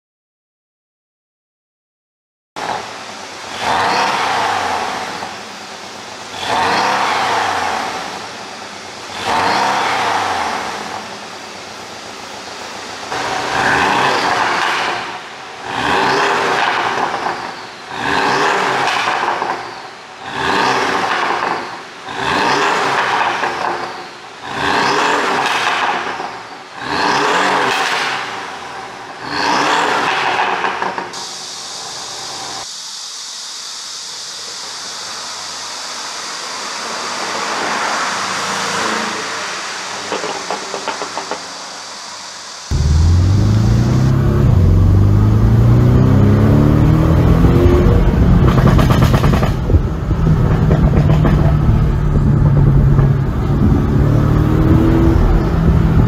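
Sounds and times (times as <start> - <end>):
road noise: 2.6 - 32.9, 34.4 - 56.0
car engine revving: 3.5 - 5.5, 6.3 - 8.4, 9.1 - 11.0, 13.1 - 17.3, 17.9 - 19.4, 20.2 - 23.4, 24.4 - 25.9, 26.8 - 28.6, 29.2 - 30.6, 42.7 - 56.0
car approaching: 42.7 - 56.0.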